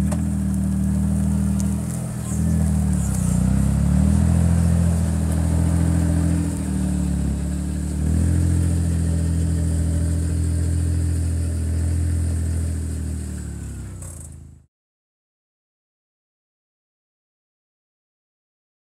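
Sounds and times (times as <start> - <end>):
utility vehicle engine under load: 0.0 - 14.7.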